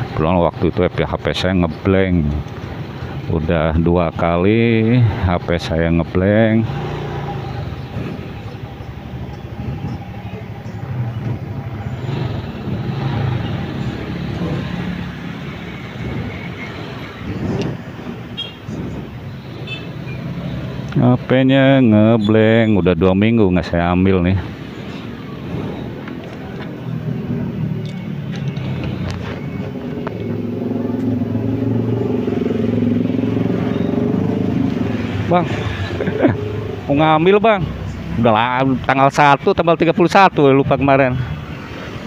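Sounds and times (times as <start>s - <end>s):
motorcycle passing: 0.0s - 39.2s
road noise: 0.0s - 42.0s
vehicle engine droning: 0.0s - 42.0s
motorcycle engine running: 24.7s - 37.6s.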